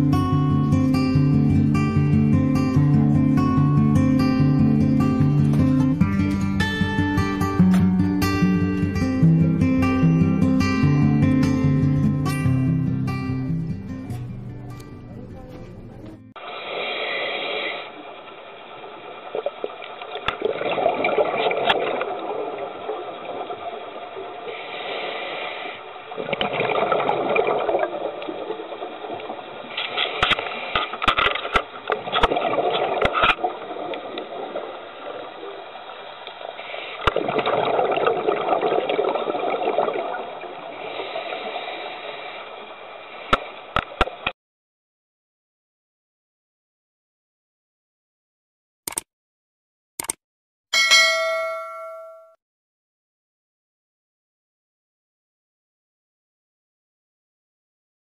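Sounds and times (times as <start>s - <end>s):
exhaled bubbles rushing: 16.4s - 24.7s, 25.5s - 29.8s, 31.8s - 42.4s
sharp clicks: 48.9s - 49.1s, 50.0s - 50.2s.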